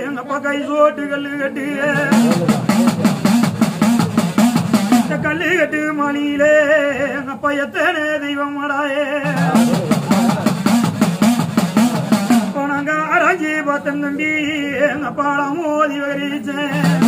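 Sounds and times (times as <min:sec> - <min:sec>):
man singing a chant: 0:00.0 - 0:03.4, 0:05.0 - 0:10.8, 0:12.3 - 0:17.0
hourglass drum beating: 0:02.1 - 0:05.1, 0:09.3 - 0:12.6.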